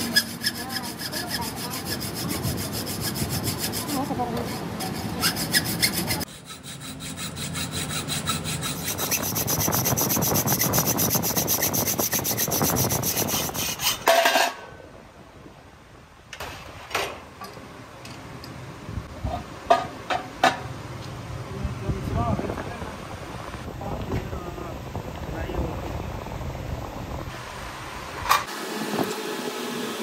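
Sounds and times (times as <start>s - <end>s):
hacksaw cutting metal: 0.0s - 14.6s.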